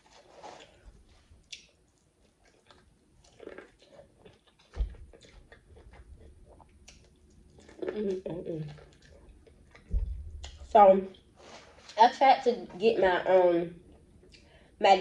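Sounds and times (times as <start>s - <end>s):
chewing corn on the cob: 0.0s - 10.7s
low thump: 9.9s - 10.3s.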